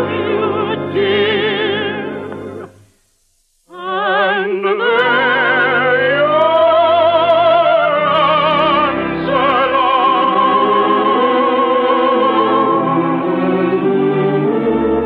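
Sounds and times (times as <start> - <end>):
operatic singing: 0.0 - 2.6, 3.7 - 15.0
orchestral accompaniment: 4.8 - 15.0.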